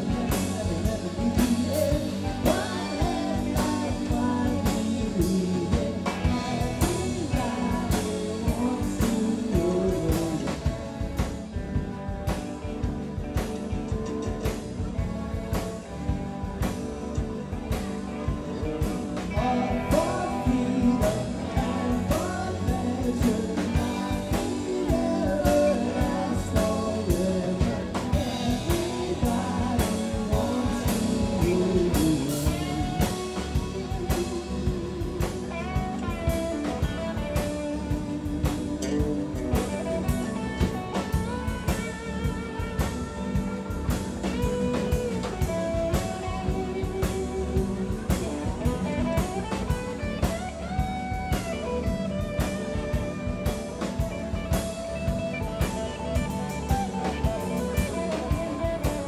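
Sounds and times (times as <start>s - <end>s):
woman singing: 0.0s - 11.1s, 19.2s - 41.7s
live band playing: 0.0s - 59.0s.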